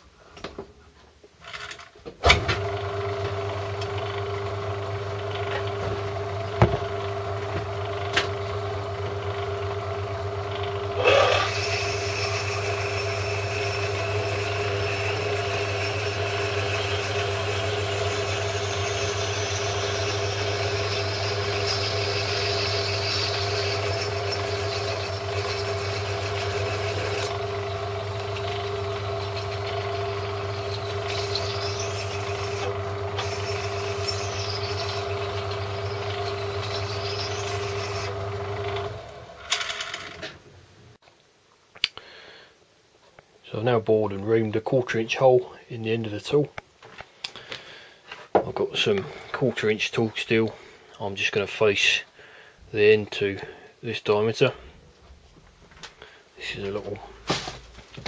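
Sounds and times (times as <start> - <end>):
lathe motor humming: 2.3 - 40.3
drill cutting steel: 2.5 - 40.1.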